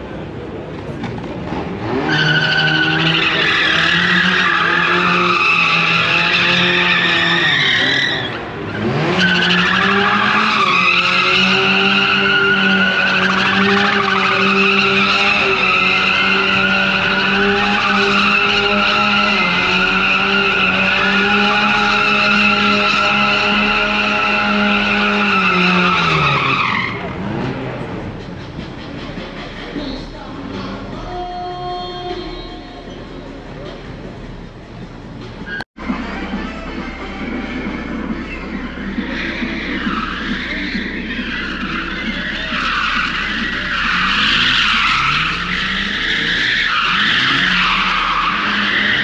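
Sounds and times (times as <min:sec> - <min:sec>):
car engine revving high: 0:01.4 - 0:28.3, 0:37.2 - 0:49.0
tyres squealing: 0:01.9 - 0:27.2, 0:37.2 - 0:49.0.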